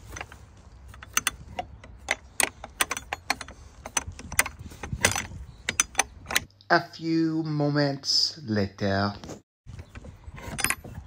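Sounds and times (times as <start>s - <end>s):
metal gate latch clanking: 0.9s - 6.5s.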